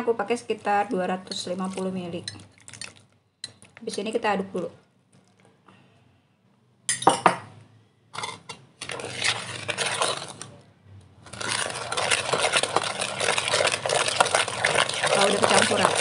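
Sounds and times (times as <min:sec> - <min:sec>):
spoon scraping a pot: 0:08.2 - 0:10.5, 0:11.3 - 0:16.0.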